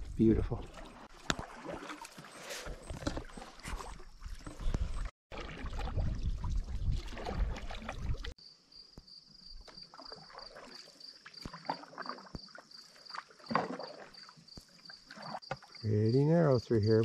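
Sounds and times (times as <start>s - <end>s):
paddle strokes in water: 0.5s - 8.4s, 9.6s - 15.8s
insect chirping: 8.4s - 17.0s.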